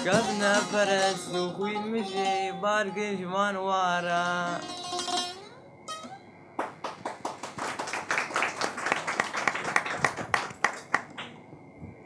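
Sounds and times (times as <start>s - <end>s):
saz playing: 0.0s - 3.4s, 4.0s - 6.3s
person singing: 0.0s - 4.8s
audience applauding: 6.6s - 11.4s.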